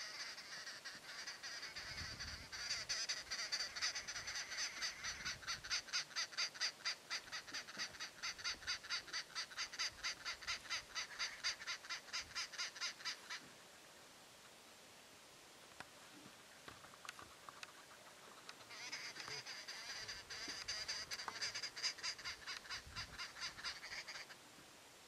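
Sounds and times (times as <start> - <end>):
high-pitched animal calling: 0.0 - 13.4, 18.6 - 24.4.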